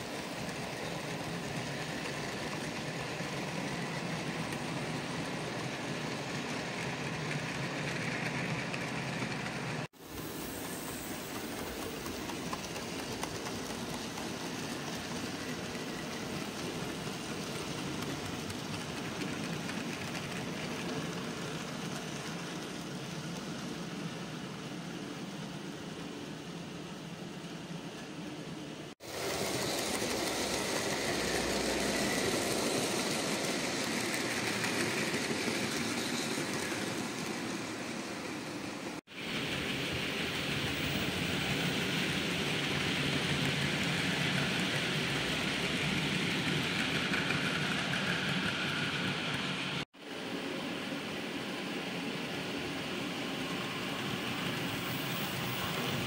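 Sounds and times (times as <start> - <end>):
model train wheels clattering: 0.0 - 23.7, 29.1 - 38.6.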